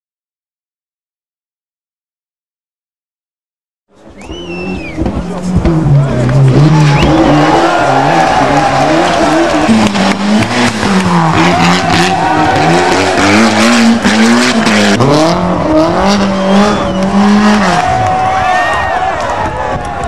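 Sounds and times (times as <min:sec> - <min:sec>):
rally car engines revving: 0:04.0 - 0:20.0.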